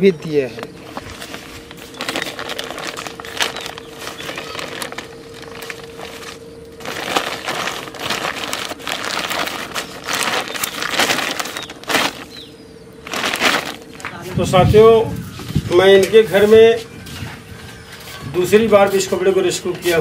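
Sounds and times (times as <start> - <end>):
plastic sack rustling: 0.5 - 16.5.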